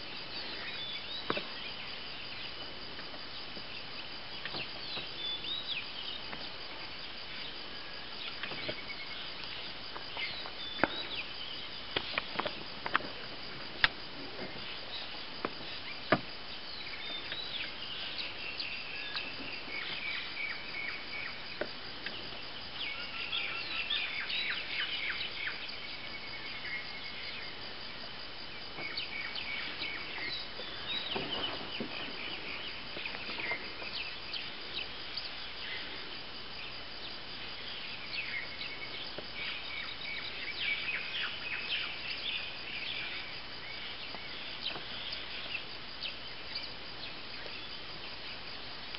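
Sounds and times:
insect drone: 0.0s - 48.9s
birds chirping: 3.4s - 7.6s, 14.6s - 27.6s, 28.5s - 35.8s.

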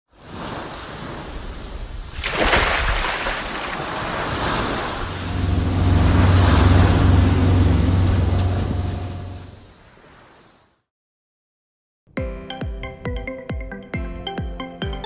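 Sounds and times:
ocean waves washing: 0.1s - 10.7s
boat engine humming: 2.8s - 9.8s.

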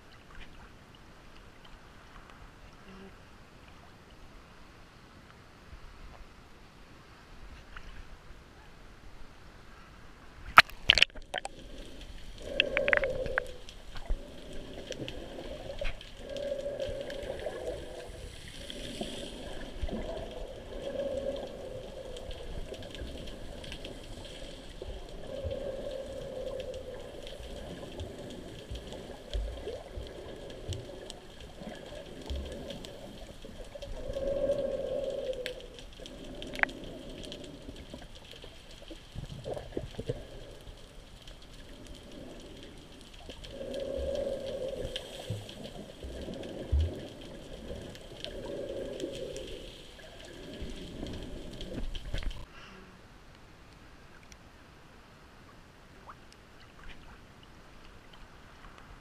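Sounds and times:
water splashes: 10.4s - 52.5s
faint ticks: 10.5s - 52.5s.

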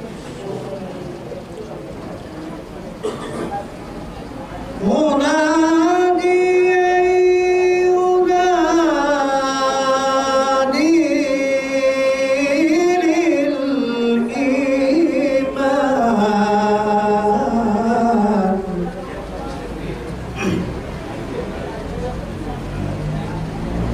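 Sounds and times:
man chanting into microphone: 4.8s - 19.0s.

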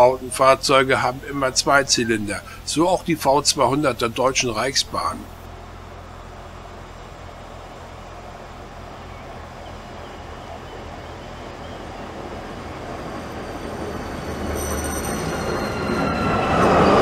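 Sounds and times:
diesel locomotive engine running: 0.0s - 17.0s
high wheel squeal: 9.3s - 17.0s.

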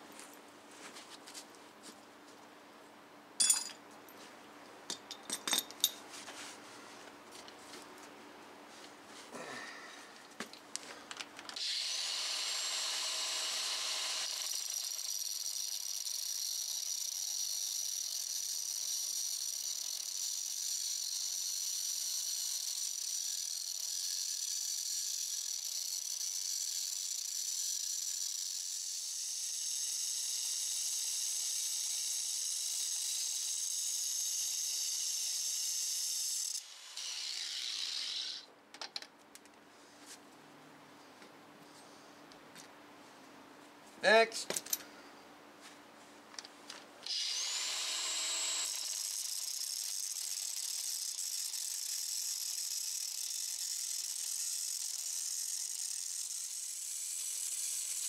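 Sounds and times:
angle grinder cutting steel: 11.6s - 38.5s, 47.0s - 58.0s.

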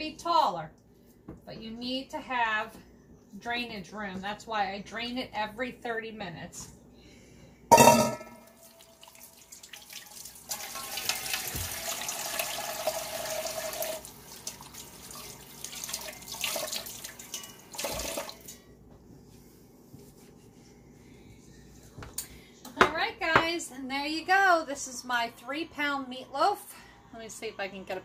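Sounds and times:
metal bowl knocking against sink: 7.7s - 8.5s
faucet running: 8.4s - 18.6s.

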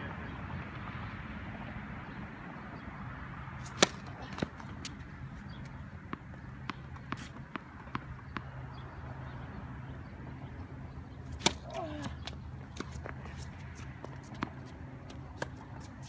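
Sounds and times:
tennis ball bouncing on hard court: 3.6s - 8.9s, 11.2s - 15.9s.

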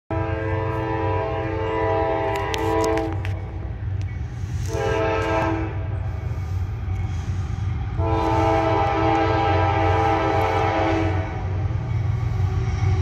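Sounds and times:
locomotive horn blasts: 0.1s - 3.5s, 4.6s - 6.0s, 7.9s - 11.6s.

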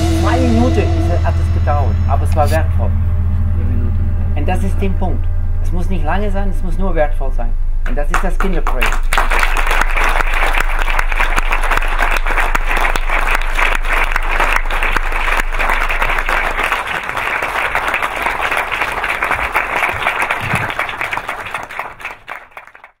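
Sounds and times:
audience applauding: 8.1s - 23.0s.

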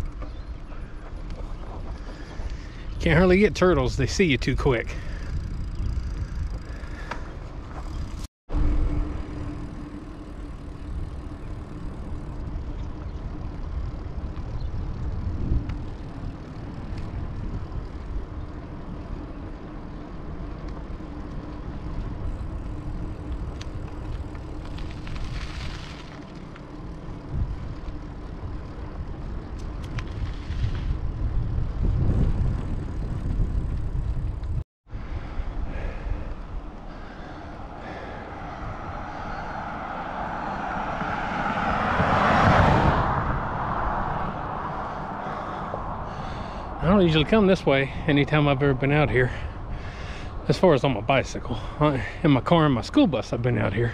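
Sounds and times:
wind buffeting microphone: 0.0s - 26.0s, 26.7s - 53.9s
steady hum: 8.5s - 29.8s.

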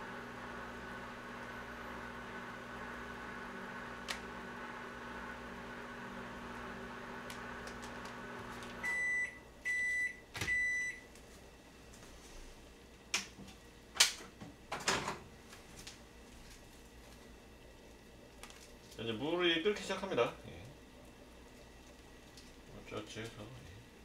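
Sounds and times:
microwave oven humming: 0.0s - 24.0s
microwave beeps: 8.8s - 11.1s.

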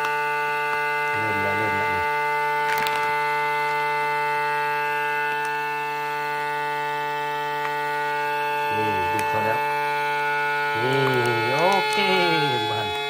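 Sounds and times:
vacuum sealer pump whining: 0.0s - 13.0s
voice-like gliding tone: 1.2s - 2.0s, 10.7s - 13.0s.

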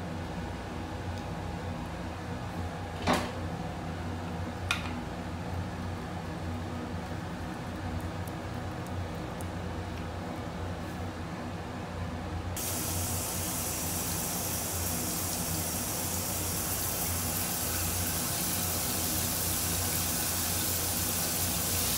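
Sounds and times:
shower head spraying water: 12.6s - 21.9s.

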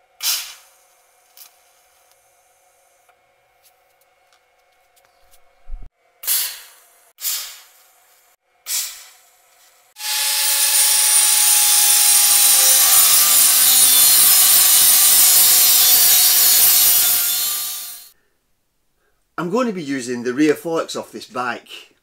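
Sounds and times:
angle grinder grinding steel: 10.0s - 18.1s.

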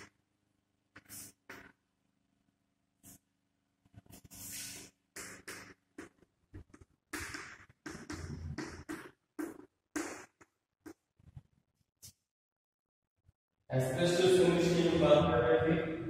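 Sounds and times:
chalk scratching on blackboard: 1.0s - 1.8s, 4.0s - 6.1s
chalk tapping on board: 4.1s - 6.2s, 7.2s - 11.0s.

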